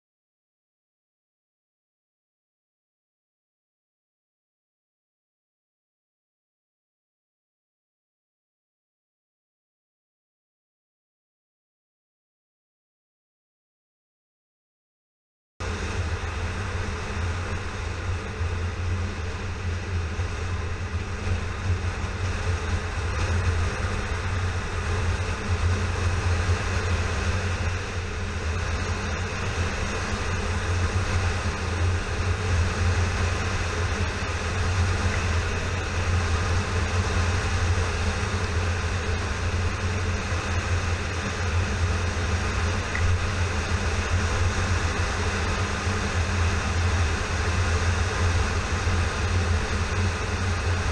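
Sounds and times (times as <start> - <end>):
wind and road noise: 15.6 - 50.9.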